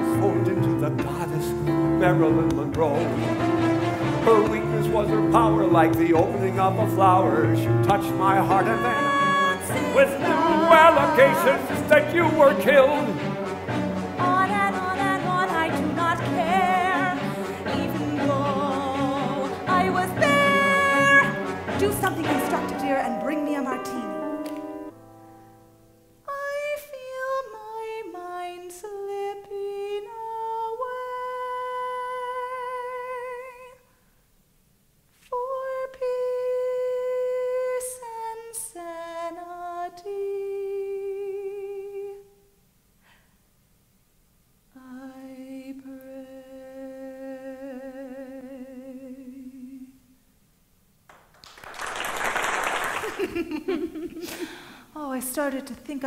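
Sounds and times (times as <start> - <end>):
woman singing wordless melody: 6.4 - 13.4, 14.0 - 24.8, 26.2 - 33.9, 35.3 - 42.4, 44.7 - 50.2.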